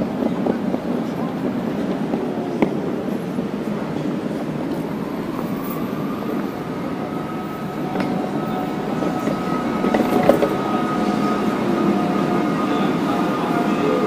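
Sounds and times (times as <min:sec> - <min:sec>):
lower tone: 0:04.7 - 0:14.0.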